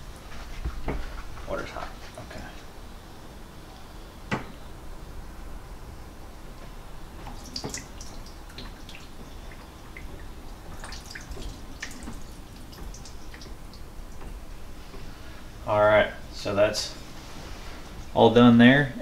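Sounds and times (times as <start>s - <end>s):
water dripping into sink: 7.2s - 14.4s.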